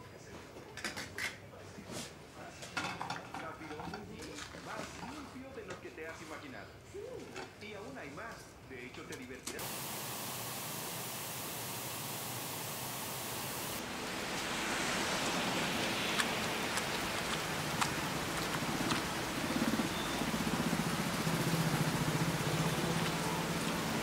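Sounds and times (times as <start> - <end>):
heavy downpour of rain: 9.6 - 24.0
steady hiss: 9.6 - 24.0.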